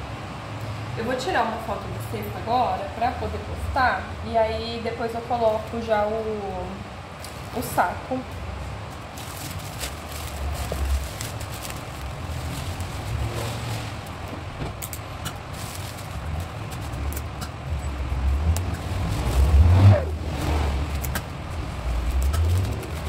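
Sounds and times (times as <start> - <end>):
low steady rumble: 0.0 - 23.0
plastic bag crinkling: 8.9 - 19.8, 20.8 - 23.0.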